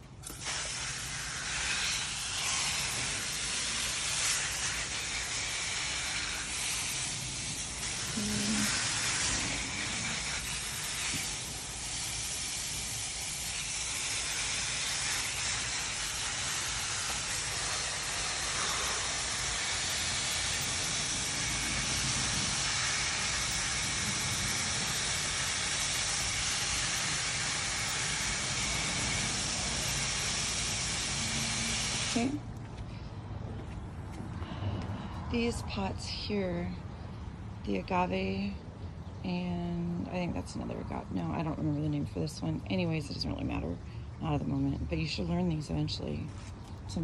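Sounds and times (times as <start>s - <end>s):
hose nozzle spraying water: 0.0s - 32.4s.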